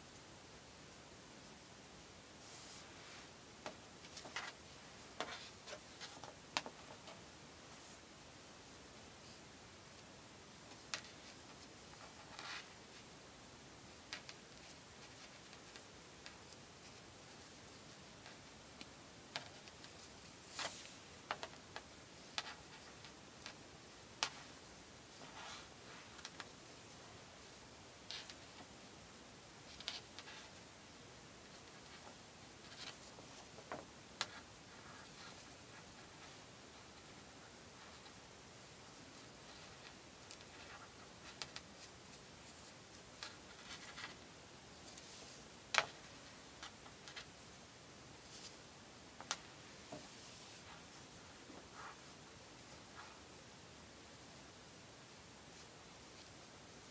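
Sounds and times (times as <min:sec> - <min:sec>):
faint hiss: 0:00.0 - 0:56.9.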